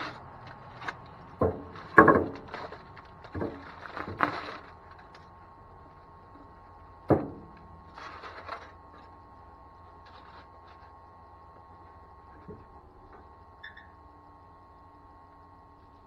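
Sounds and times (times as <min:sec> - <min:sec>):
foil rustling: 0:00.0 - 0:06.6, 0:07.4 - 0:09.2, 0:09.8 - 0:11.0.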